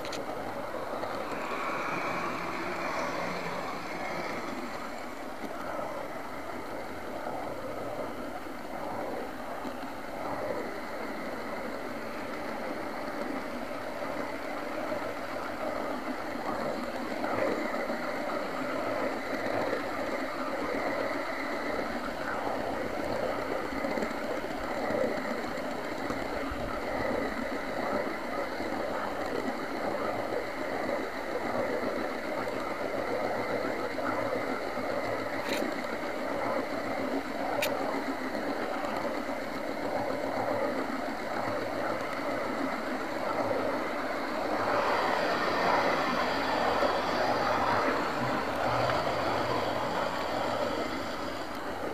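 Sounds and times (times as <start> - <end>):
small electric motor whirring: 0.0 - 5.5.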